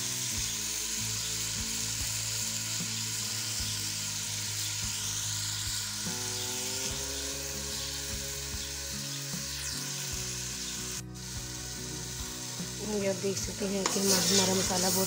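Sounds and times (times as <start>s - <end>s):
food sizzling in oil: 0.0s - 15.0s
ladle stirring and knocking pot: 13.8s - 14.8s.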